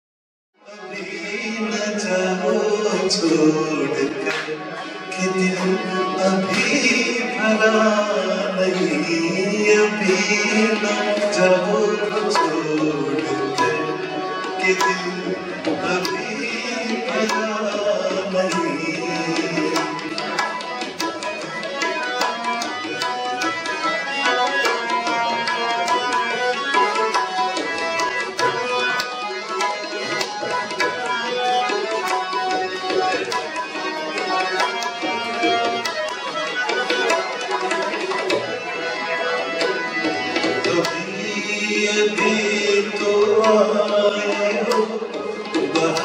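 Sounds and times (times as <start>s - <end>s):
rapid tabla strokes: 9.8s - 46.0s.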